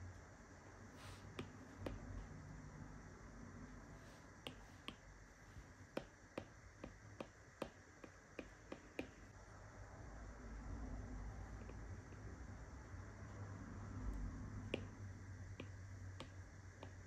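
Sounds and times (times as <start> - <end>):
stylus tapping on glass screen: 14.7 - 14.9.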